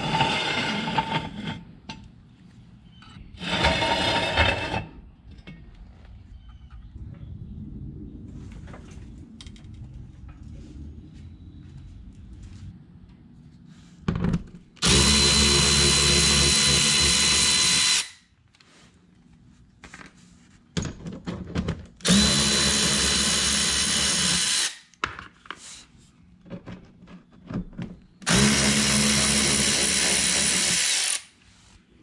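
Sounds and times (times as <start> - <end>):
electric ratchet spinning bolts: 28.2 - 31.3.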